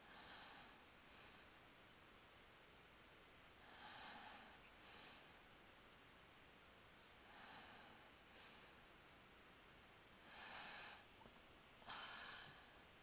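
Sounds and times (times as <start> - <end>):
faint breaths through nose: 0.0 - 1.7, 3.6 - 5.6, 6.9 - 9.4, 10.2 - 11.2, 11.8 - 13.0.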